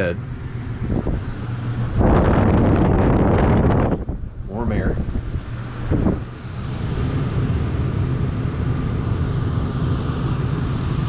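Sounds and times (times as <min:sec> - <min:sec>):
air conditioner blower fan: 0:00.0 - 0:11.0.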